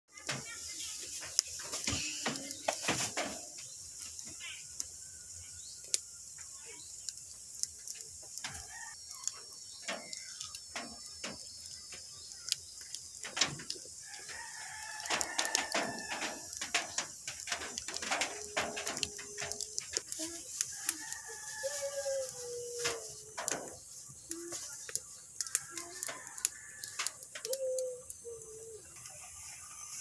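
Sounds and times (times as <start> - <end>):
wood fire crackling and popping: 0.1 - 30.0
rooster crowing: 8.4 - 9.4, 14.0 - 16.8, 20.8 - 23.6.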